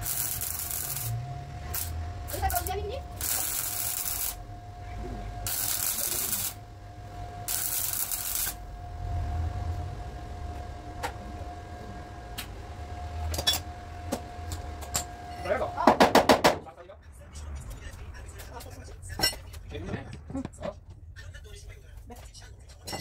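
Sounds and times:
welder crackling and sizzling: 0:00.0 - 0:04.5, 0:05.4 - 0:06.6, 0:07.4 - 0:08.6
faint steady hum: 0:00.0 - 0:23.0.

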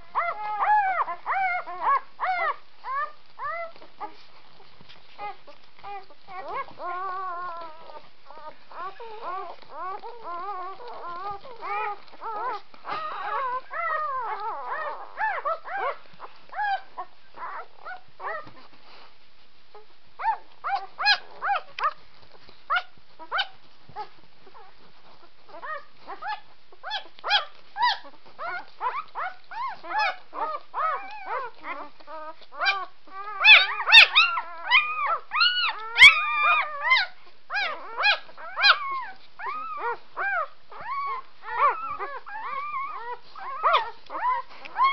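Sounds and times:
puppies squeaking and whimpering: 0:00.0 - 0:19.1, 0:19.7 - 0:44.9.

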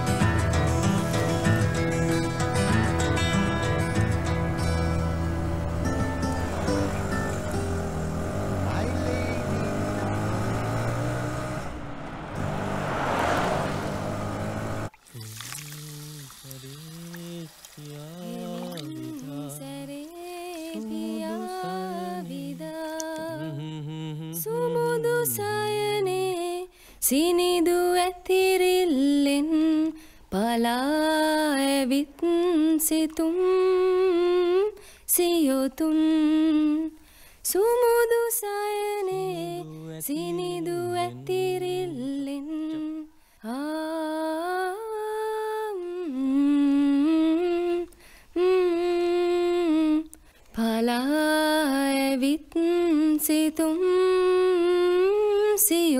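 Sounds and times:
lower voice singing: 0:15.1 - 0:26.6, 0:38.6 - 0:55.9
woman humming: 0:15.2 - 0:25.9, 0:39.2 - 0:43.0, 0:45.8 - 0:50.1.

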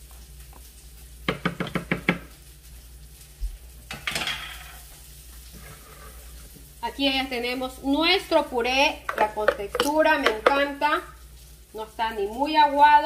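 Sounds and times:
spatula tapping plastic blender jar: 0:01.3 - 0:02.2, 0:09.1 - 0:10.7
spatula scraping: 0:04.4 - 0:06.6.

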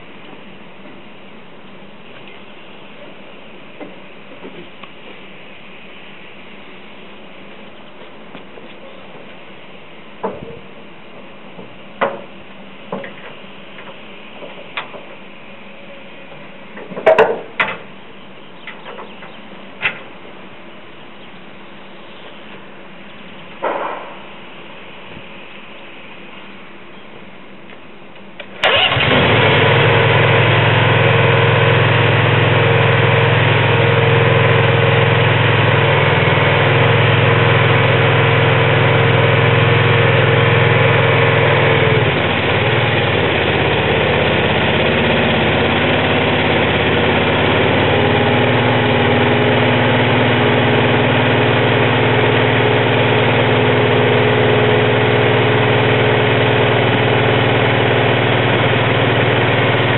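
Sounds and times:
small engine fast idle: 0:28.6 - 0:59.9.

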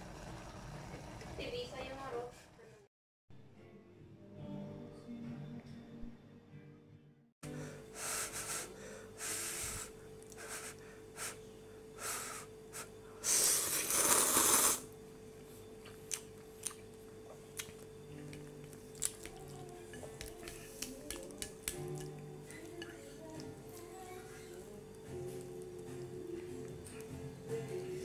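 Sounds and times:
faint steady hum: 0:07.5 - 0:28.0
noodle slurping: 0:13.2 - 0:14.9
chewing and chopstick clicks: 0:15.8 - 0:22.2.

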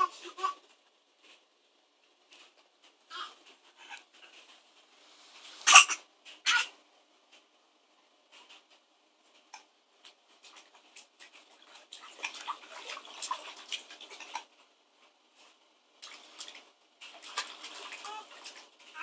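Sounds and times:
baby vocal sounds: 0:00.0 - 0:00.6, 0:03.1 - 0:03.4, 0:05.7 - 0:06.8, 0:17.9 - 0:19.0
water splashing in buckets: 0:10.1 - 0:14.6, 0:16.0 - 0:19.0.

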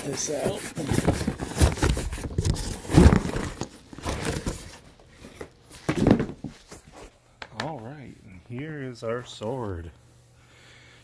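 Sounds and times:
packaging rustling and scraping: 0:00.0 - 0:06.9
box bump: 0:05.8 - 0:06.5.

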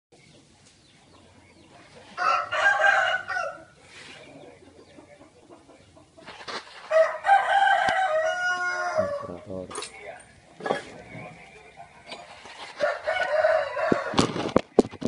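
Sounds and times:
rooster crowing: 0:02.2 - 0:03.8, 0:06.9 - 0:09.4, 0:12.8 - 0:14.2.

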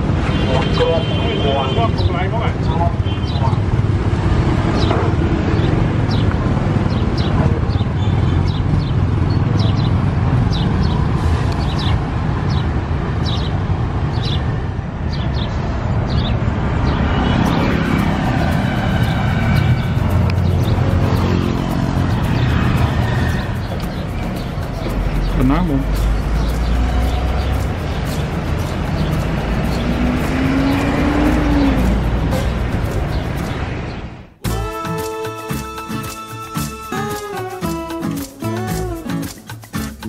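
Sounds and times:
passing cars and motorbikes: 0:00.0 - 0:34.4
high-pitched chirps: 0:17.4 - 0:33.7, 0:34.4 - 0:40.0.

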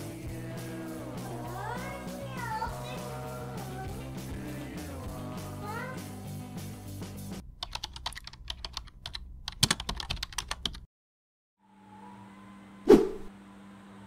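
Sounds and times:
background music: 0:00.0 - 0:07.4.

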